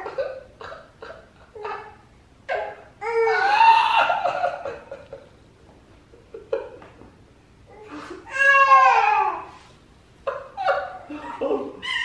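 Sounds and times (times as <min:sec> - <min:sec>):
baby laughing squeals: 0:10.6 - 0:12.0.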